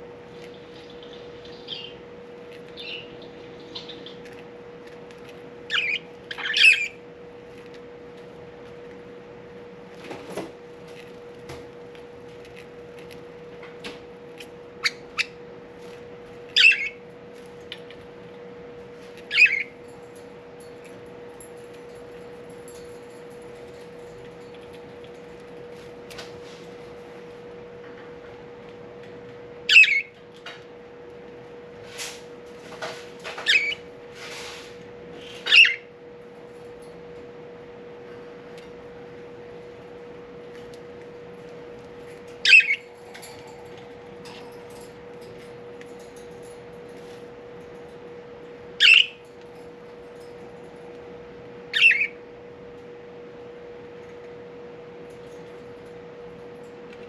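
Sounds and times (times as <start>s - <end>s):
budgerigar calls: 5.7s - 6.9s, 29.7s - 30.1s, 35.5s - 35.8s, 42.4s - 42.8s, 48.8s - 49.2s, 51.8s - 52.1s.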